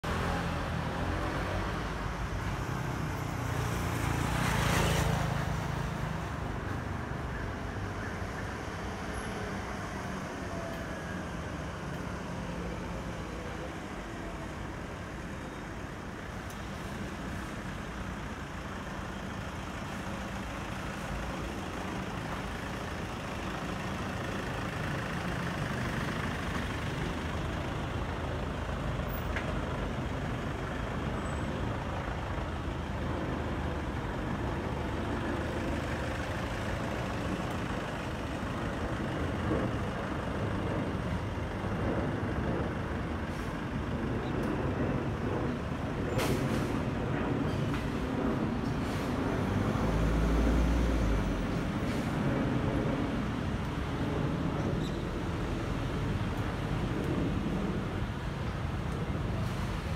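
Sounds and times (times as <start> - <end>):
jet airliner passing overhead: 40.4 - 49.9, 51.1 - 59.9.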